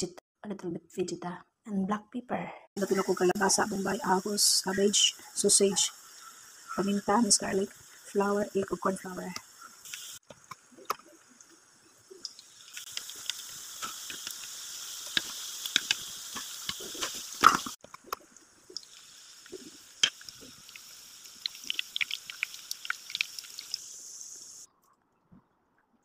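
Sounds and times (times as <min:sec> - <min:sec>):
fritters sizzling in oil: 0:02.8 - 0:24.7
oil popping crackles: 0:04.9 - 0:24.7.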